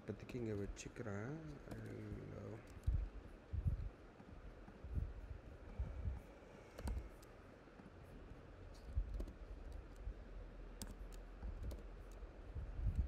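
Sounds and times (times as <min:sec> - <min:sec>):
faint low room rumble: 0:00.0 - 0:13.0
mouse and keyboard clicks: 0:01.4 - 0:03.0, 0:06.6 - 0:07.9, 0:08.7 - 0:10.1, 0:10.7 - 0:12.2.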